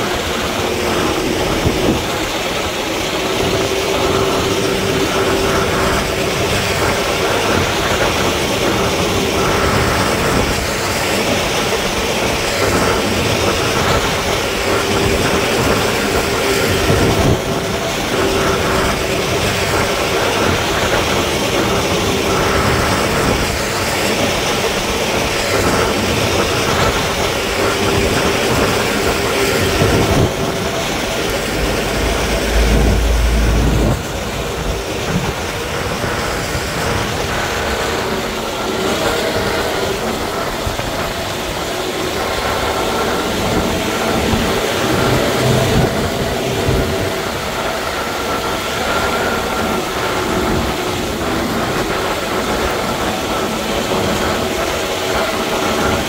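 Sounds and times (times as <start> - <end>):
heavy machinery engines running: 0.0 - 56.0
deep low rumble: 29.9 - 36.8.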